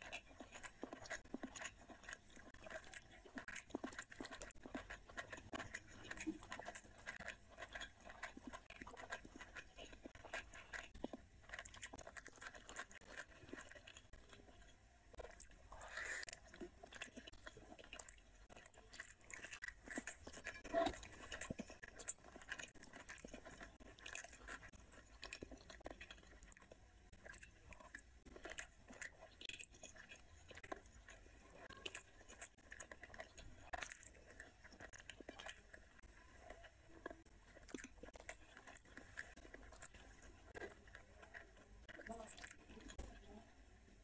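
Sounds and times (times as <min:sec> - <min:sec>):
fingers mixing rice on plate: 0:00.0 - 0:43.4
person chewing: 0:00.0 - 0:43.4.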